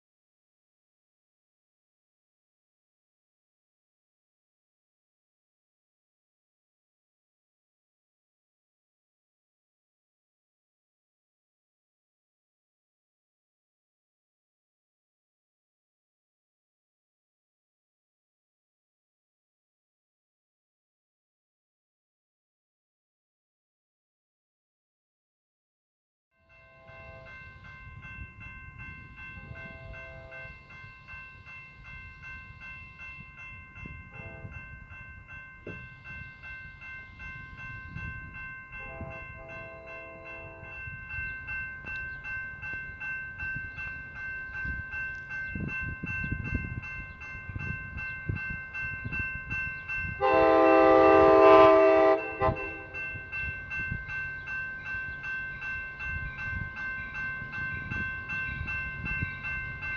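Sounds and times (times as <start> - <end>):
crossing bell dinging: 26.4 - 59.9
train rumbling: 26.5 - 59.9
train horn blasts: 29.5 - 30.5, 50.2 - 53.1.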